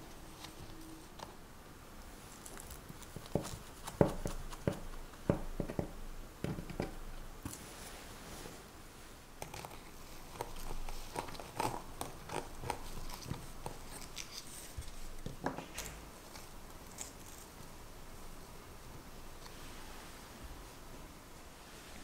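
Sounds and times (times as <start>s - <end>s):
fingertips pressing sponge: 3.2s - 7.0s.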